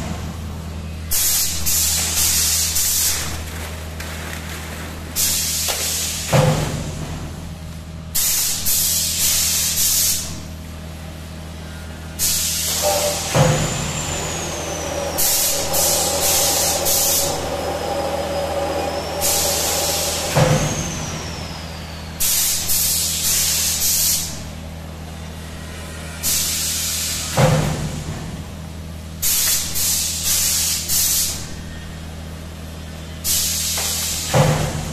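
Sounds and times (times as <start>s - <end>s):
electrical hum: 10.2s - 26.1s
compressed air hiss blasts: 12.2s - 24.4s
sharp machine knock: 12.7s - 22.9s.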